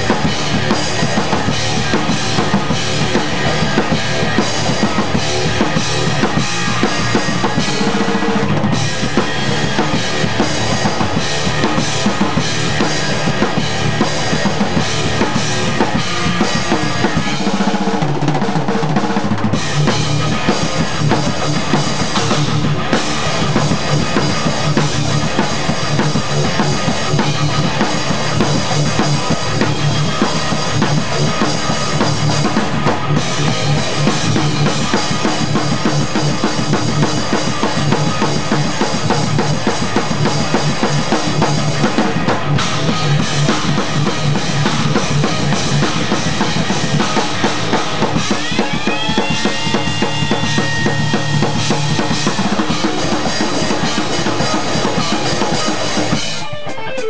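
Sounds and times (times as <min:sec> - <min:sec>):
rock band playing: 0:00.0 - 0:57.0
drum kit hits: 0:19.5 - 0:57.0.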